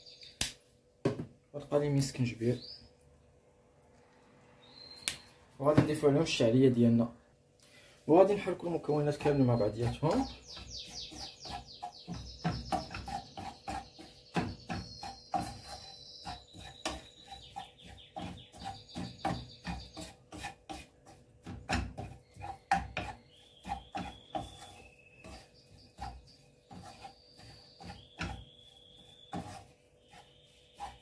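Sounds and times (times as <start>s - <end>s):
wooden spatula scraping a frying pan: 8.1s - 31.0s.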